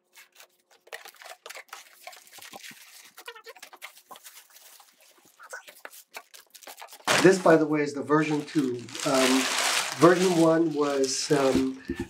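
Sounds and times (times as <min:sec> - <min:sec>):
plastic packing crinkling: 0:00.1 - 0:12.0
cardboard box rustling and scraping: 0:08.3 - 0:11.8.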